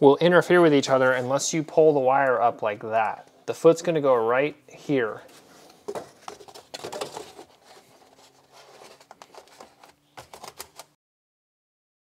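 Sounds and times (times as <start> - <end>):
foam rubbing and scraping: 5.3 - 9.9.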